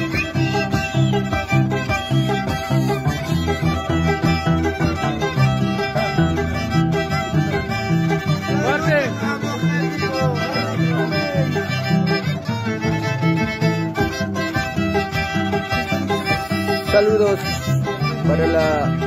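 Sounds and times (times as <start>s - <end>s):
plucked harp bass notes: 0.0s - 19.0s
violin sliding melody: 0.0s - 19.0s.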